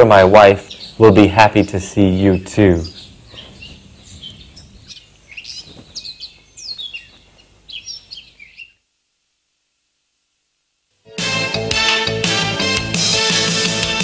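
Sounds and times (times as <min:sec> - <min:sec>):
birds chirping: 0:00.0 - 0:08.9
faint background hiss: 0:00.0 - 0:11.2.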